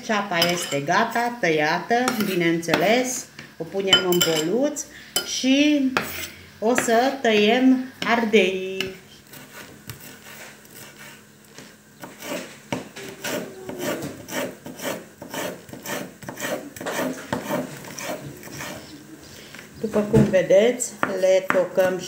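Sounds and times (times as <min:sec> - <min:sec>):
knife slicing pepper on board: 0:09.3 - 0:18.9.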